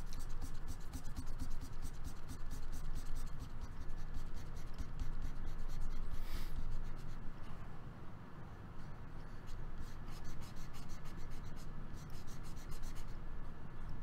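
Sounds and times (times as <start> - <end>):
stylus scratching on pen tablet: 0.0 - 7.3, 9.2 - 13.2
steady low hum: 0.0 - 14.0.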